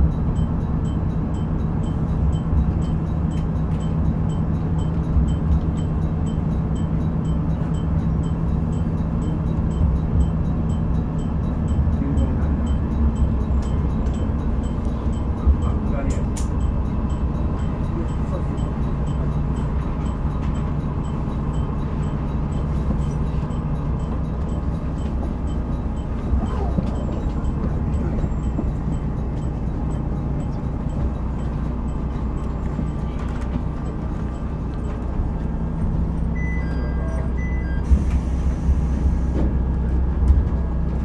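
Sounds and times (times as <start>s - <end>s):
railcar engine hum: 0.0s - 41.0s
short electronic beeps: 36.3s - 38.0s.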